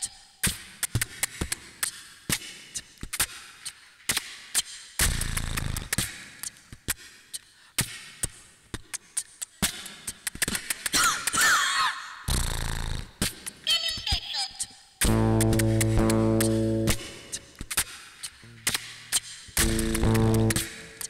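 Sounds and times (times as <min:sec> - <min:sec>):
sharp clicks and knocks: 0:18.6 - 0:21.0.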